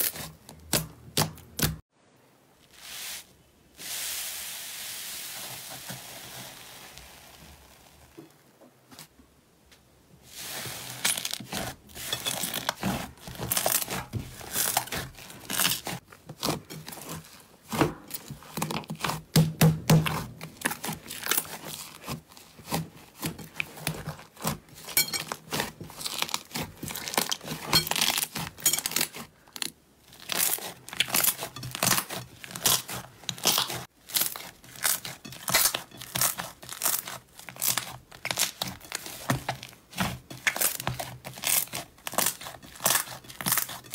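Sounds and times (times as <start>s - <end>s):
slime crackling and popping: 24.3s - 43.9s.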